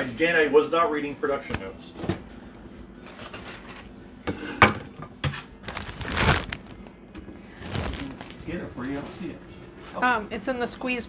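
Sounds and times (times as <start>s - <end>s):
plastic bag crinkling: 5.6s - 6.8s, 7.6s - 8.5s.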